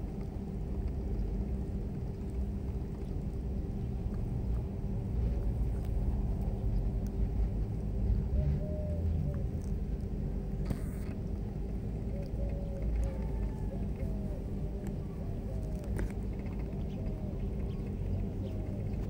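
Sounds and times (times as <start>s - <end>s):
faint hum: 0.0s - 19.0s
low rumble: 0.0s - 19.0s.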